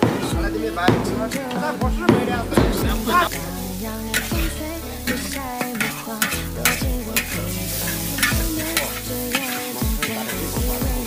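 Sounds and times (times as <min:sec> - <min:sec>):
food sizzling: 0:00.0 - 0:11.0
metal spatula scraping a wok: 0:03.0 - 0:11.0.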